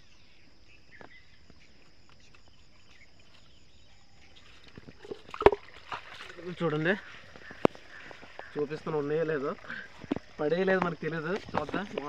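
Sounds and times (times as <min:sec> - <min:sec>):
insects chirring: 0:00.0 - 0:12.0
bamboo trap knocking and rattling: 0:04.8 - 0:06.4.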